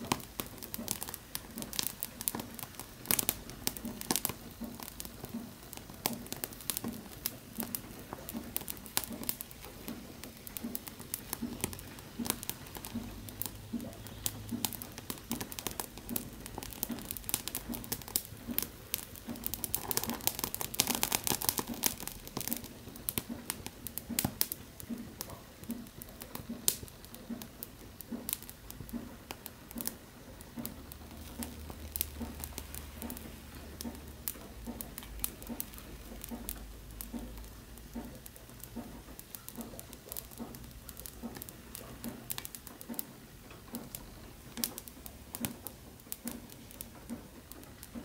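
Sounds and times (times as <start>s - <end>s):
cork burning and crackling: 0.0s - 48.0s.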